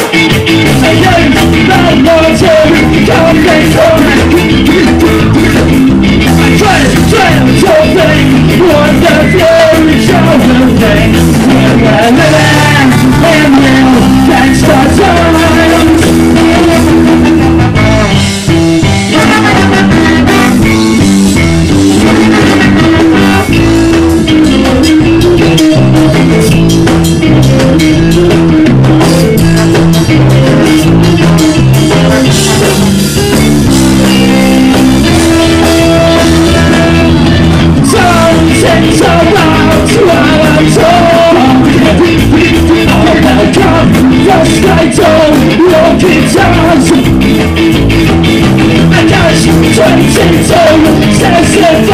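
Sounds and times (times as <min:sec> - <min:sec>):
person singing: 0:00.0 - 0:21.0, 0:33.8 - 0:47.7, 0:48.6 - 0:51.9
ska band playing: 0:00.0 - 0:51.9.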